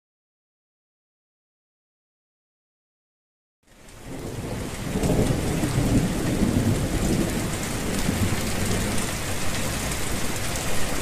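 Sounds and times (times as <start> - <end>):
heavy rain: 3.6 - 11.0
thunder rumbling: 4.0 - 11.0.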